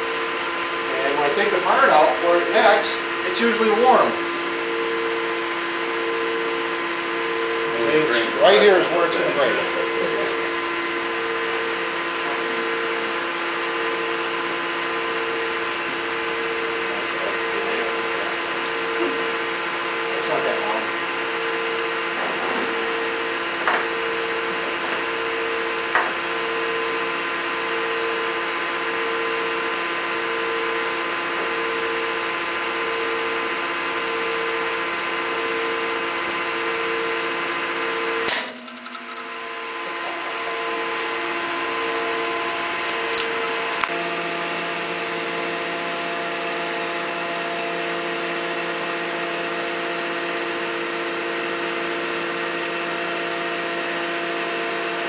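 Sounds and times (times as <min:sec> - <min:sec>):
testing machine hum: 0:00.0 - 0:22.1, 0:22.7 - 0:51.1
metal bar snapping bang: 0:38.3 - 0:39.6
pulsing tone: 0:38.3 - 0:39.9.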